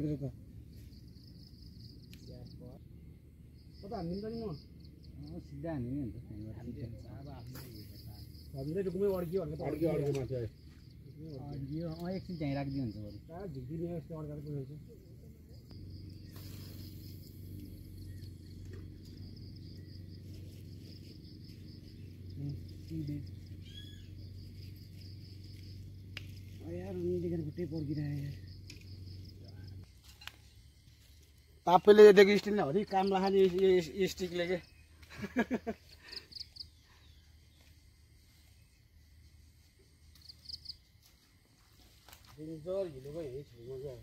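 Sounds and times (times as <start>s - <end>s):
faint low rumble: 0.0s - 31.6s
insects trilling: 0.0s - 44.0s
rising chirp: 15.1s - 26.4s.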